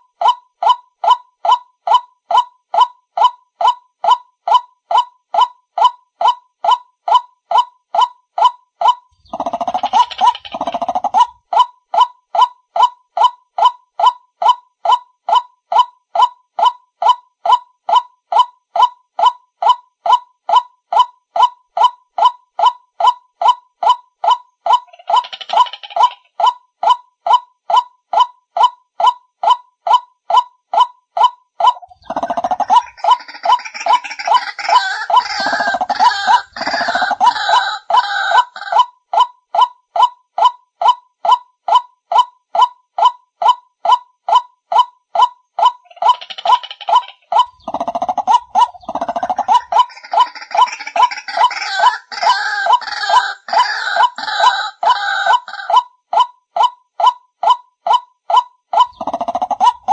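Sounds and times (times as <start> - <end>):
harsh overlapping croaks: 9.1 - 11.4, 31.8 - 38.7, 45.8 - 55.7, 58.9 - 59.9
waterhen calling: 31.7 - 38.8, 45.8 - 55.8.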